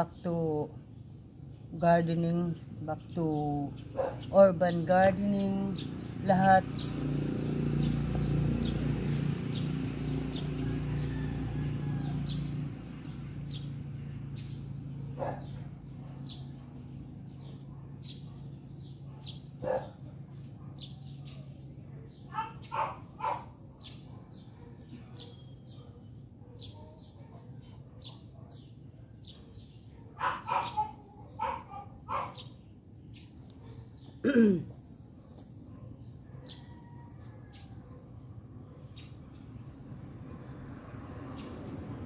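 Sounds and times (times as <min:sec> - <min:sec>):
dog barking: 0:03.9 - 0:04.4, 0:15.2 - 0:32.6, 0:35.2 - 0:36.9.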